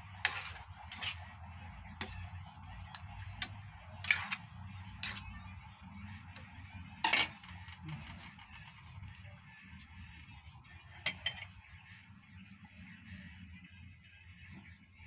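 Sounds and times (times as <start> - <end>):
metal spoon scraping a frying pan: 0.0 - 9.2, 10.9 - 11.7.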